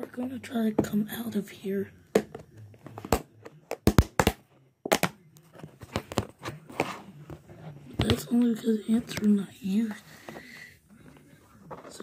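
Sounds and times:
plastic lid clicks and cracks: 3.0 - 5.2.

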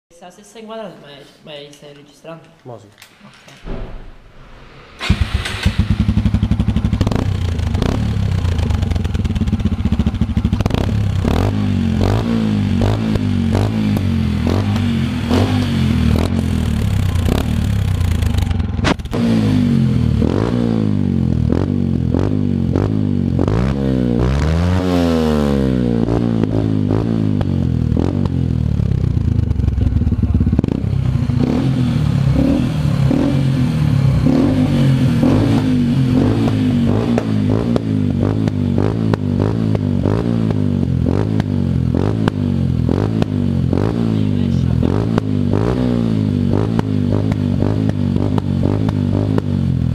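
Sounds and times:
motorcycle engine revving: 4.6 - 49.9.

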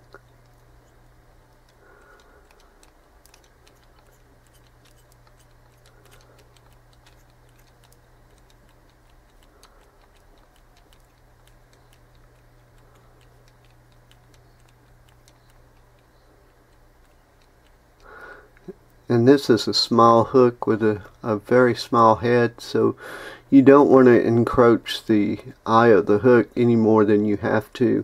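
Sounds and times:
light ticking of thread wrapping: 0.0 - 19.1
low electrical hum: 0.0 - 28.0.

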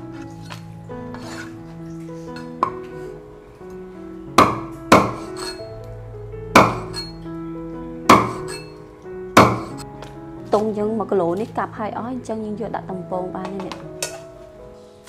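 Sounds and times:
background music with held notes: 0.0 - 15.0
cleaver chopping on wooden board: 4.4 - 5.6, 6.6 - 7.1, 8.1 - 8.5, 9.4 - 9.8.

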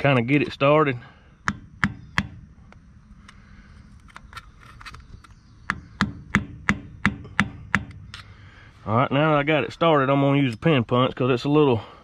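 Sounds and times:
hammer tapping on metal: 1.4 - 2.4, 5.7 - 8.0.

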